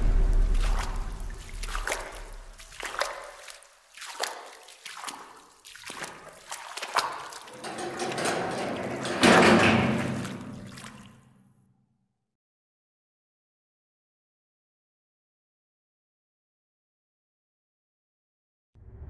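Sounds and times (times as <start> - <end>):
loud hit: 0.0 - 2.6
low drone: 0.0 - 2.6
echoing knocks: 0.0 - 3.2, 7.6 - 11.1.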